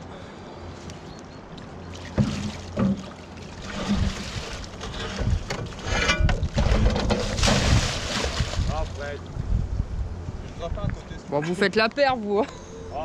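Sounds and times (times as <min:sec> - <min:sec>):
water sloshing and pouring: 0:01.6 - 0:09.4
wind rumbling on microphone: 0:03.6 - 0:11.3.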